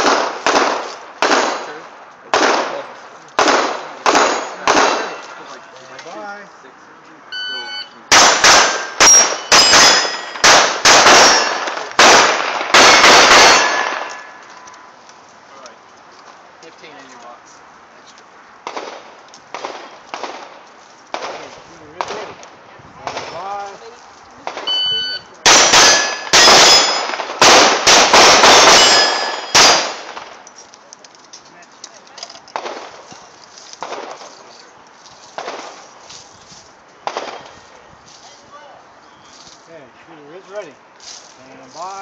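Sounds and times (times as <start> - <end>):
pistol shots: 0.0 - 2.8, 3.4 - 5.4, 8.1 - 14.4, 18.6 - 22.3, 25.4 - 30.4, 37.1 - 37.6
shot timer beep: 7.4 - 8.0, 24.7 - 25.3
steel plate ringing: 8.6 - 10.4, 11.2 - 11.6, 13.4 - 14.4, 25.8 - 27.1, 28.6 - 29.8.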